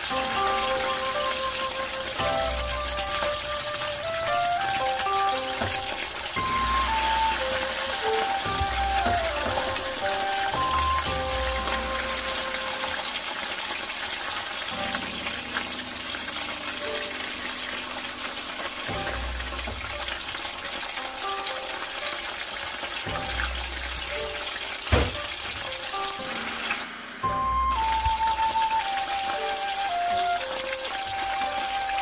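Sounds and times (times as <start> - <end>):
background music: 0.0 - 32.0
food sizzling in hot oil: 0.0 - 32.0
sharp knock: 24.9 - 25.3.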